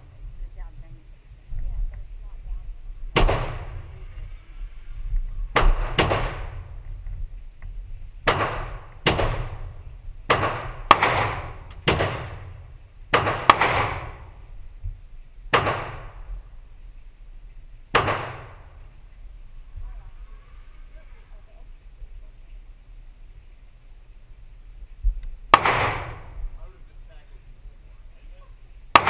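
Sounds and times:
rifle gunshots with echo: 3.2s - 3.9s, 5.5s - 6.8s, 8.2s - 14.4s, 15.5s - 16.4s, 17.9s - 18.7s, 25.5s - 26.4s.

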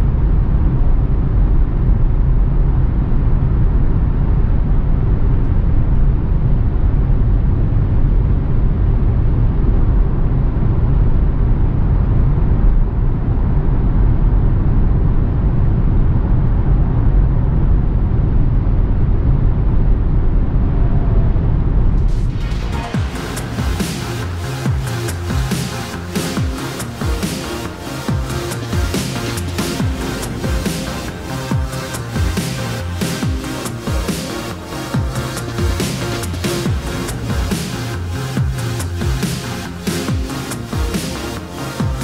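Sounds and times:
road and wind noise in car: 0.0s - 22.4s.

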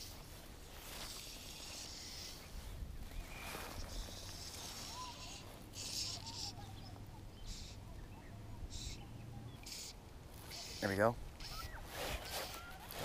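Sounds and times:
fly line swishing through rod guides: 0.0s - 2.6s, 11.4s - 13.0s
faint bird chirps: 0.6s - 13.0s.

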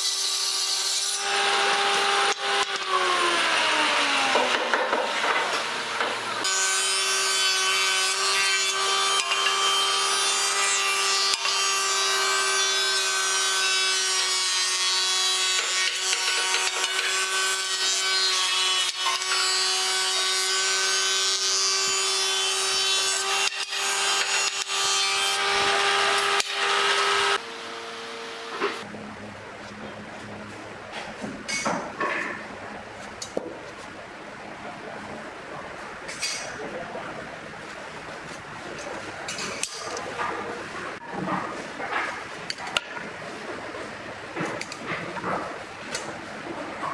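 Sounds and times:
thickness planer whine: 20.1s - 30.4s.

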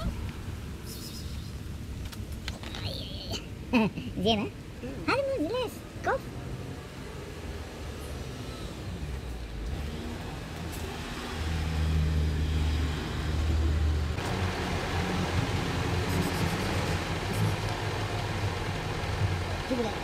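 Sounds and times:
road noise rushing: 4.4s - 20.0s
car engine humming: 13.4s - 20.0s.

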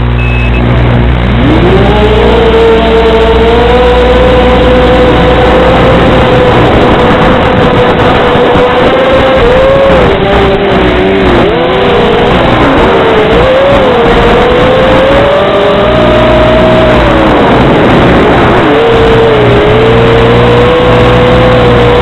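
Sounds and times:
dense rushing noise: 0.0s - 22.0s.

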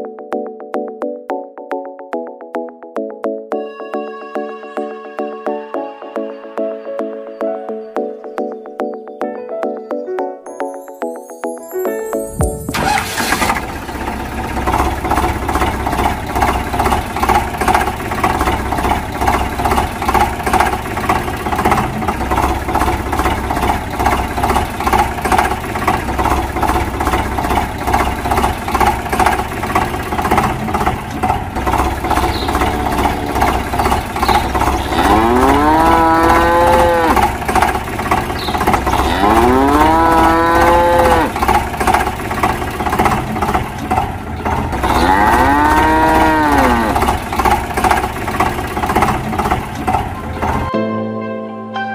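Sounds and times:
tractor engine chugging: 12.2s - 50.7s
cow mooing: 32.2s - 37.4s, 38.9s - 41.4s, 44.8s - 47.1s.

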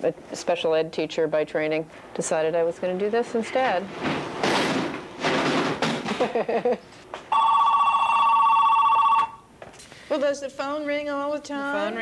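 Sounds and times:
telephone ringing: 7.3s - 9.5s.

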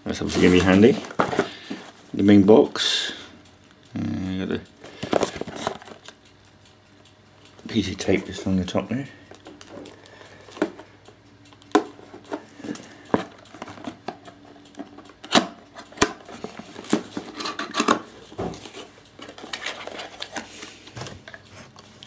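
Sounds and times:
cardboard rustling: 0.3s - 1.9s.

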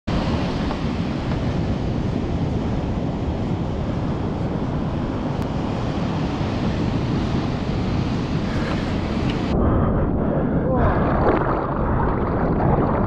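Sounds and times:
ocean surf breaking: 0.1s - 9.6s
wind buffeting microphone: 0.1s - 13.0s.

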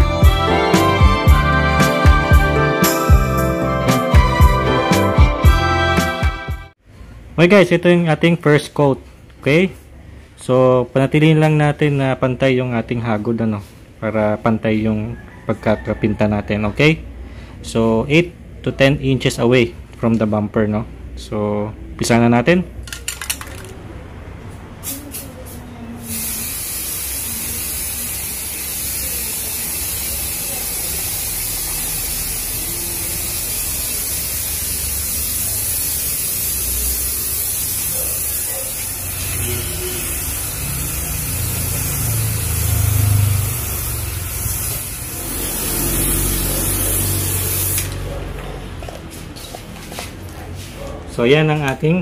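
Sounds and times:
aerosol spray hissing: 26.0s - 48.0s.

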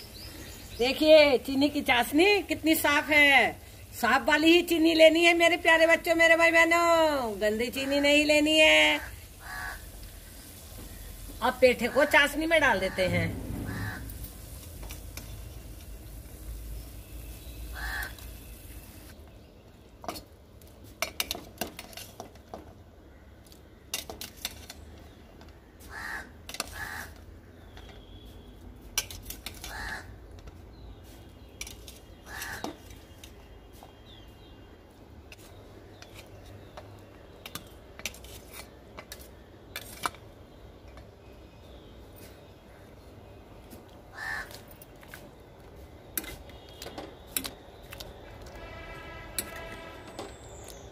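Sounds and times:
crows cawing: 9.1s - 9.9s, 13.6s - 14.1s, 17.7s - 18.2s, 25.8s - 27.2s, 29.6s - 30.1s, 32.3s - 32.7s, 44.1s - 44.6s.

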